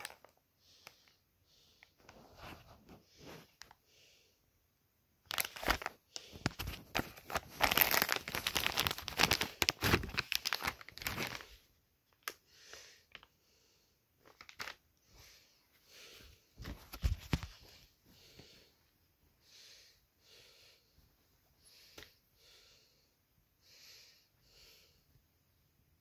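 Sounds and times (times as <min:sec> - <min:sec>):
plastic bag crinkling and rustling: 0:00.0 - 0:00.4, 0:05.3 - 0:12.4, 0:14.2 - 0:14.8.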